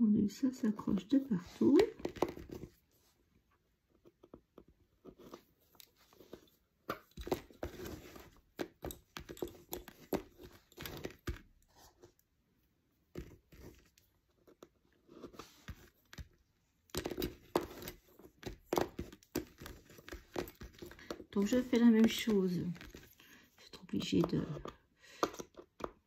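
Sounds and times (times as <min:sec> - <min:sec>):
lace bobbins clicking and rattling: 0:01.6 - 0:02.7, 0:05.2 - 0:11.7, 0:15.6 - 0:26.0.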